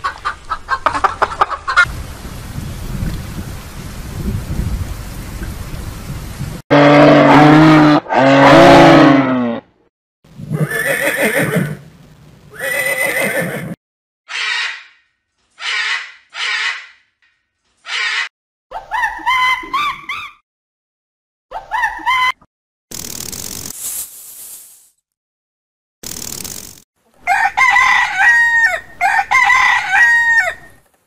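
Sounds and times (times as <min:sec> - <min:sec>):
horse whinnying: 0:10.5 - 0:11.8, 0:12.5 - 0:13.8
steady hiss: 0:23.7 - 0:25.0.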